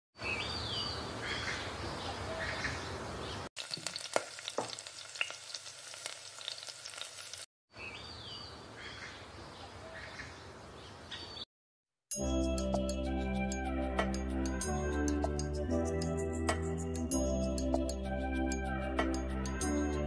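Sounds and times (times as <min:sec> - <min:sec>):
food frying in hot oil: 0:03.6 - 0:07.5.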